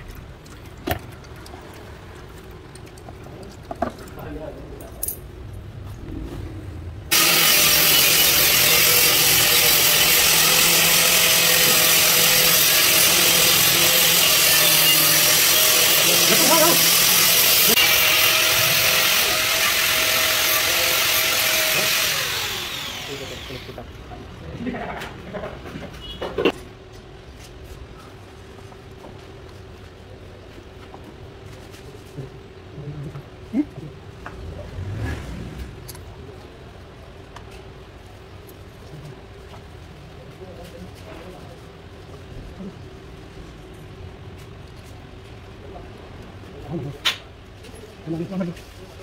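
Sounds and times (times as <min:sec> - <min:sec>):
low hum: 0:05.3 - 0:07.1
loud steady machine noise: 0:07.1 - 0:23.8.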